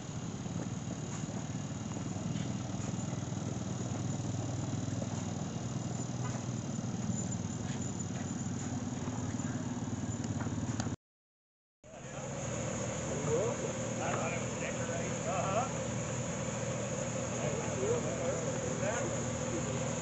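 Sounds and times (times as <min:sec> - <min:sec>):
insects chirping: 0:00.0 - 0:10.7
engine puttering: 0:00.0 - 0:11.0, 0:11.9 - 0:20.0.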